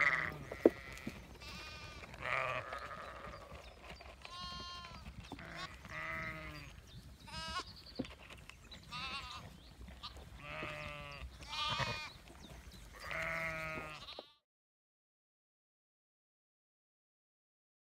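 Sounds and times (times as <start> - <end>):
lambs bleating: 0.0 - 3.6, 4.2 - 12.3, 12.9 - 14.4.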